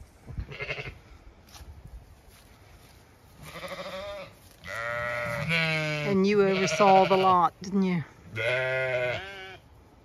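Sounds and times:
sheep bleating: 0.5s - 1.0s, 3.4s - 7.5s, 8.3s - 9.6s.

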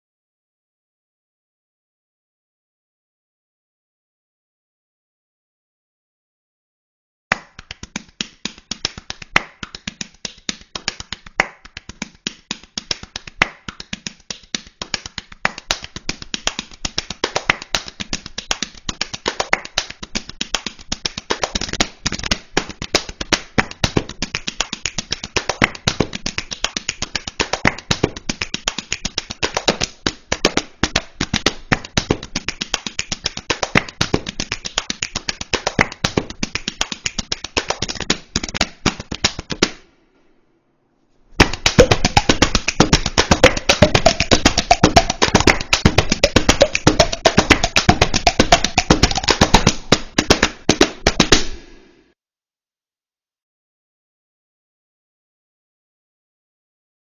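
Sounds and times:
hands slapping belly and chest: 7.3s - 39.9s, 41.4s - 51.8s.

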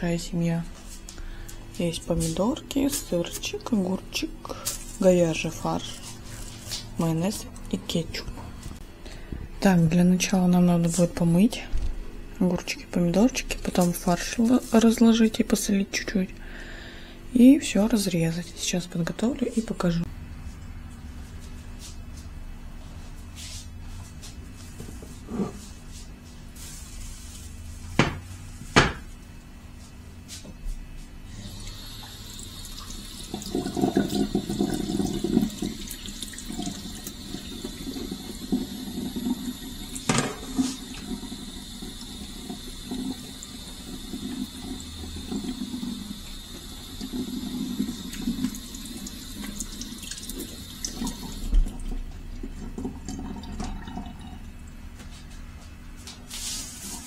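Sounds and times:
tap running into sink: 32.8s - 42.0s.

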